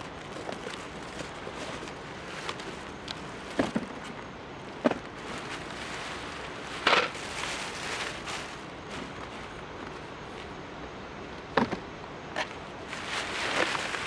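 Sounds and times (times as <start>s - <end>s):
plastic bag crinkling: 0.0s - 3.7s, 5.1s - 10.4s, 12.8s - 14.0s
nylon fabric rustling: 5.2s - 10.6s, 12.8s - 14.0s.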